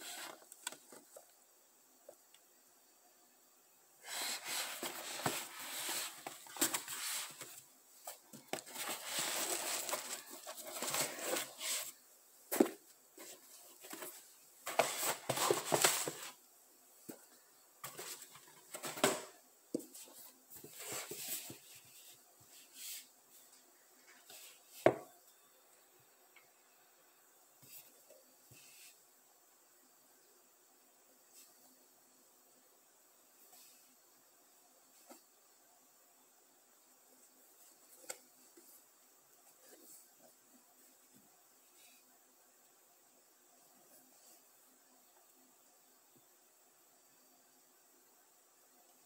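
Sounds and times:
cardboard and tissue paper rustling: 0:04.0 - 0:16.4, 0:19.9 - 0:23.5.

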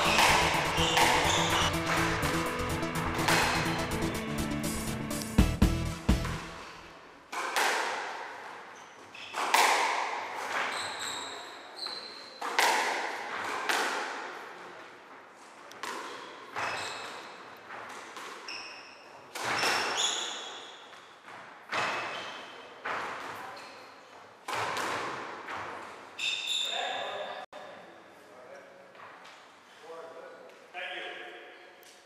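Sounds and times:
shoes squeaking on wooden floor: 0:00.0 - 0:01.8, 0:10.5 - 0:12.5, 0:16.1 - 0:24.2, 0:25.5 - 0:27.4
squash ball cracking off rackets: 0:00.0 - 0:02.3, 0:03.0 - 0:03.8, 0:07.3 - 0:10.8, 0:12.4 - 0:14.4, 0:15.7 - 0:16.7, 0:19.3 - 0:20.2, 0:24.4 - 0:25.9.

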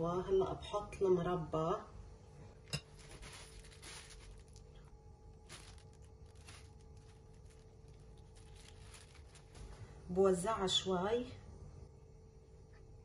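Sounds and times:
faint steady hum: 0:00.0 - 0:13.0
plastic piping bag crinkling: 0:02.9 - 0:10.0.

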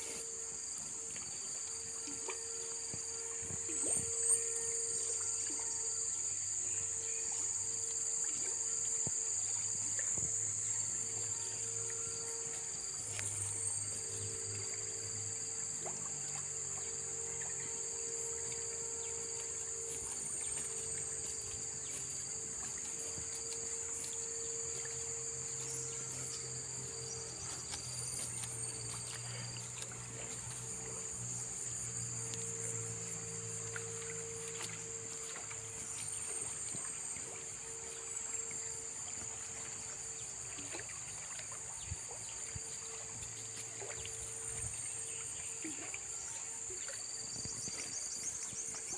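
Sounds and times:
low hum: 0:00.0 - 0:46.5
insect chorus drone: 0:00.0 - 0:48.9.

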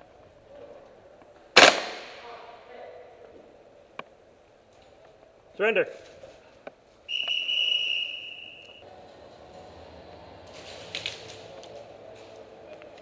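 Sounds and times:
high-pitched whistle blast: 0:07.1 - 0:08.9.

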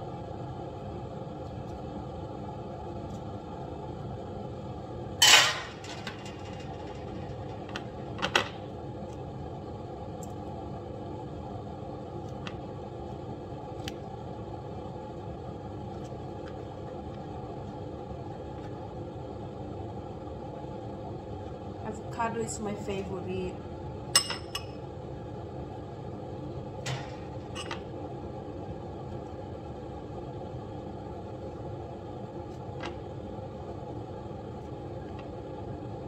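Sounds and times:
steady background hum: 0:00.0 - 0:36.0
spoon clinking ceramic bowl: 0:24.2 - 0:24.8.

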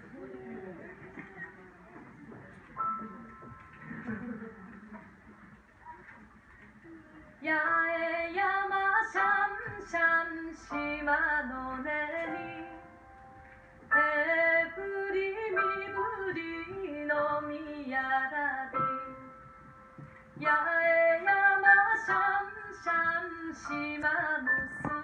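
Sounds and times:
piano: 0:00.0 - 0:25.0
woman singing slow song: 0:07.4 - 0:12.8, 0:20.4 - 0:25.0.

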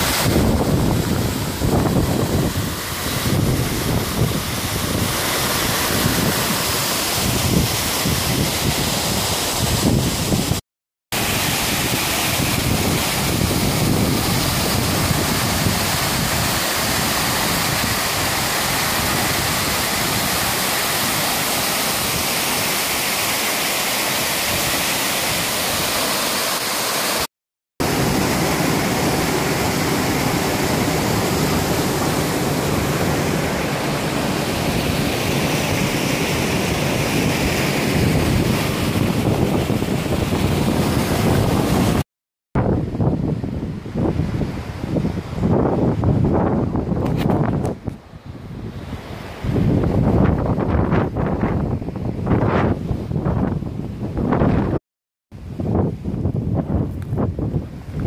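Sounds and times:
creek water running between boulders: 0:00.0 - 0:10.4, 0:11.1 - 0:42.0
waterfall rushing into pool: 0:00.0 - 0:42.1.

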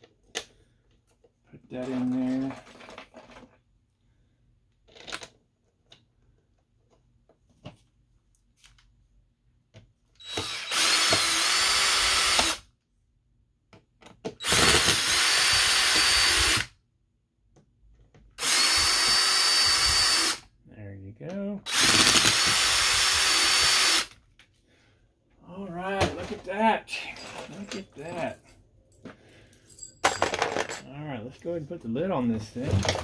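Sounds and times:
power drill driving screws: 0:10.2 - 0:12.6, 0:14.4 - 0:16.7, 0:18.4 - 0:20.4, 0:21.7 - 0:24.2.

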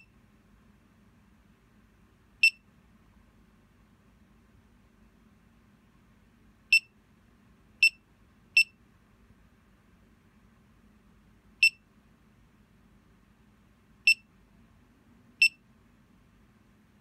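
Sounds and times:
high-pitched buzzer beeps: 0:02.4 - 0:02.6, 0:06.7 - 0:06.9, 0:07.8 - 0:08.0, 0:08.6 - 0:08.8, 0:11.6 - 0:11.8, 0:14.1 - 0:14.3, 0:15.4 - 0:15.6.

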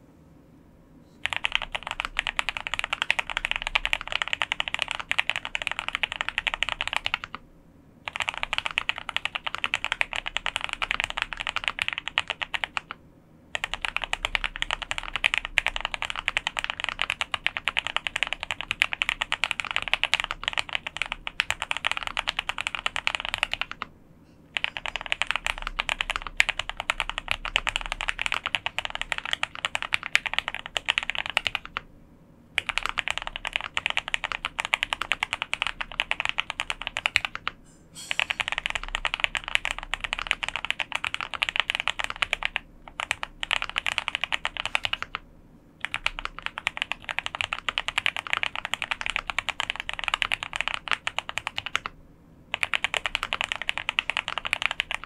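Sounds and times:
fast mechanical keyboard typing: 0:01.2 - 0:07.4, 0:08.0 - 0:23.9, 0:24.5 - 0:31.9, 0:32.6 - 0:37.6, 0:38.2 - 0:45.2, 0:45.8 - 0:55.0.

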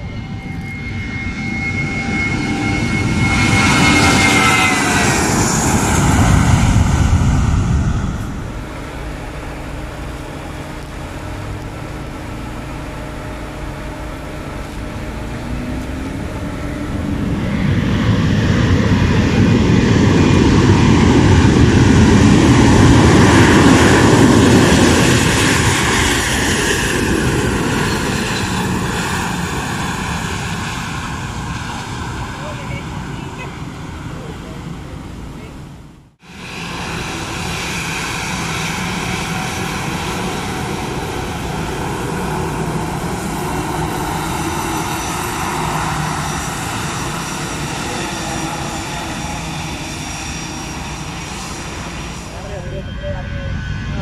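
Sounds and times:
jet airliner passing: 0:00.0 - 0:54.0
jet engine roar and whine: 0:00.0 - 0:54.0.

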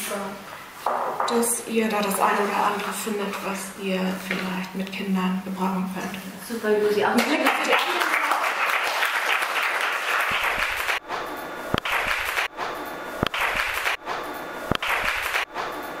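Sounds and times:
audience applause: 0:07.2 - 0:11.0, 0:11.8 - 0:12.5, 0:13.2 - 0:14.0, 0:14.7 - 0:15.5.

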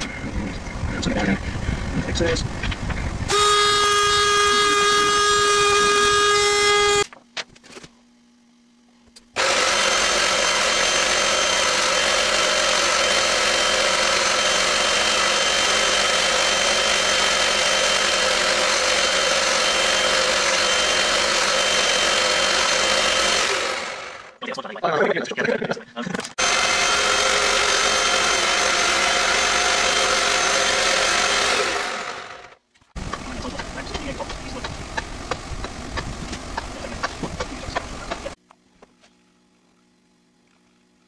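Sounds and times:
power tool high whine: 0:03.3 - 0:07.1, 0:09.4 - 0:24.4, 0:26.4 - 0:36.0
rough grinding noise: 0:09.4 - 0:24.4, 0:26.1 - 0:38.4.

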